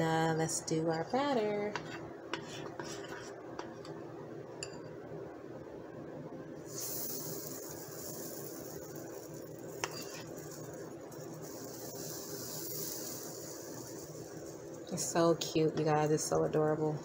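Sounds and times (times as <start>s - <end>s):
batter sizzling on hot plates: 6.6s - 16.6s
metal spoon clinking bowl: 9.7s - 10.6s.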